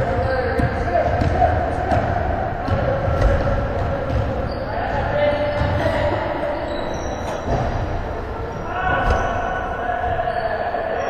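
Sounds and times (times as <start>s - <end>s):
distant indistinct voices: 0.0s - 11.0s.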